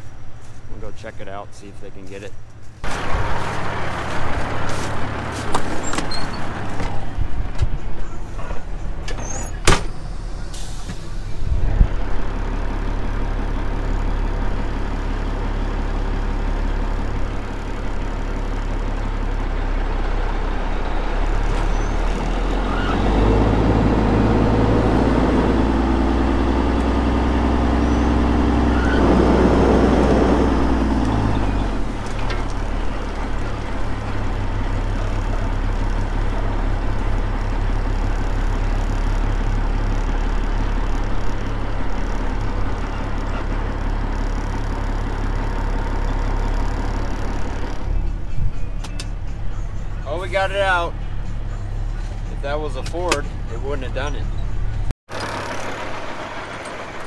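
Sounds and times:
vehicle engine revving: 11.2s - 48.1s.

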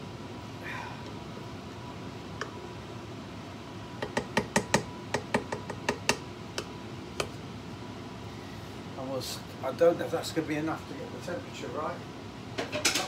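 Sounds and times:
wooden spoon knocking saucepan: 4.0s - 6.2s.

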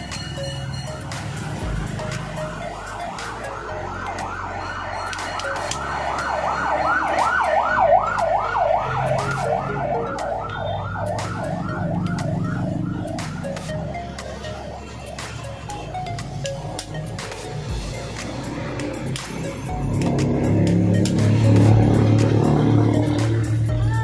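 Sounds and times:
emergency siren yelping: 0.9s - 17.7s.

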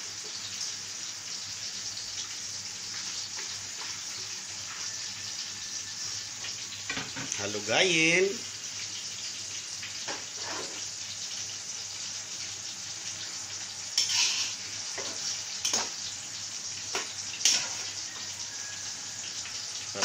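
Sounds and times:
broth boiling and bubbling: 8.4s - 20.0s.

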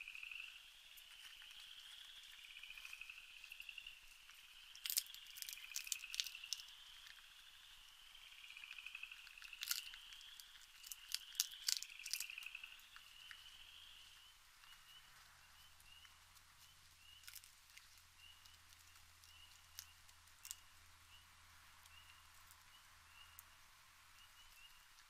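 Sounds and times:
raccoon eating with crunches: 0.9s - 21.0s.

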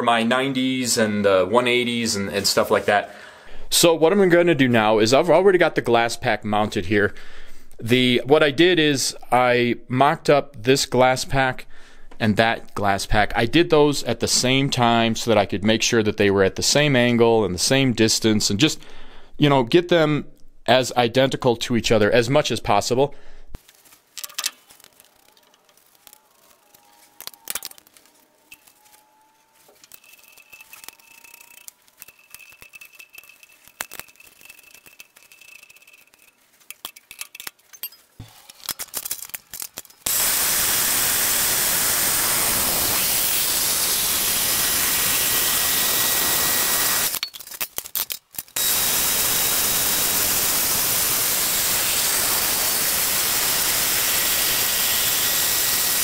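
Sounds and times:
bandsaw cutting steel tube: 24.8s - 36.4s, 38.2s - 47.3s, 48.4s - 56.0s.

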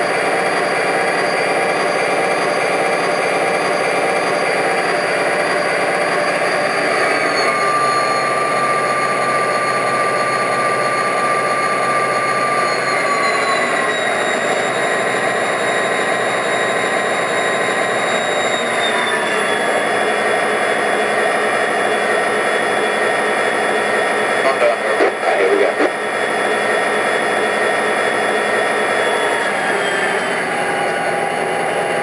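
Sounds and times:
whine sliding in pitch: 0.0s - 32.0s
diesel engine rumble from speaker: 19.3s - 32.0s.

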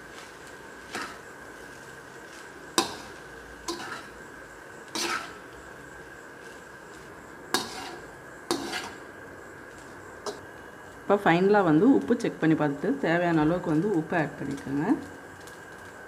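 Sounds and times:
metal spatula clanking on wok: 2.8s - 4.1s, 5.0s - 5.4s.

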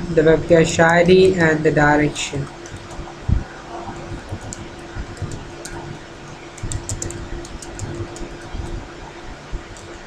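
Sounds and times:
steady low hum: 0.0s - 10.0s
computer keyboard typing: 2.4s - 3.1s, 3.9s - 8.8s, 9.7s - 10.0s.

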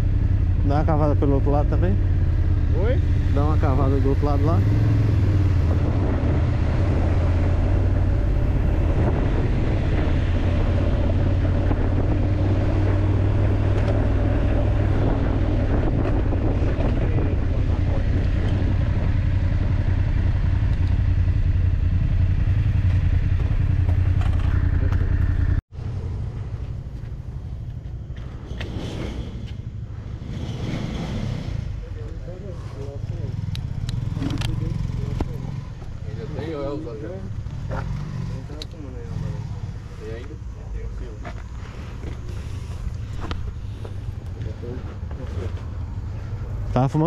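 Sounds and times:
motorcycle engine droning: 0.0s - 47.0s
quiet engine rumble: 31.7s - 47.0s.

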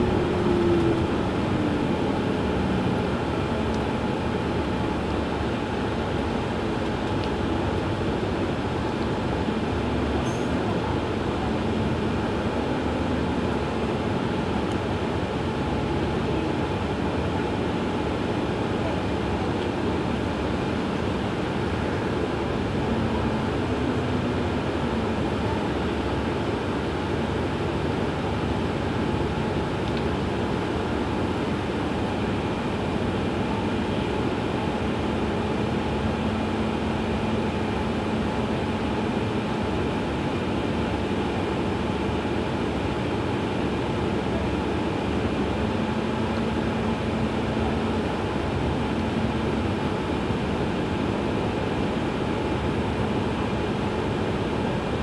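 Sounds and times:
bus engine idling: 0.0s - 55.0s.

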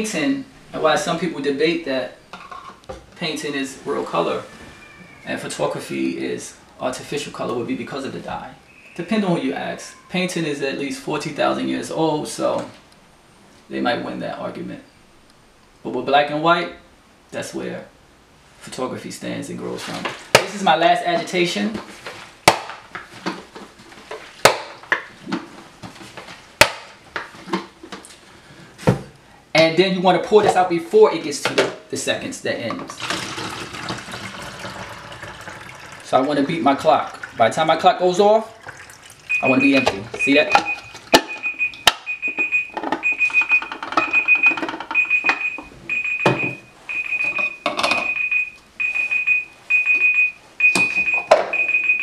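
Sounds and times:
high-pitched timer beeping: 39.3s - 52.0s.

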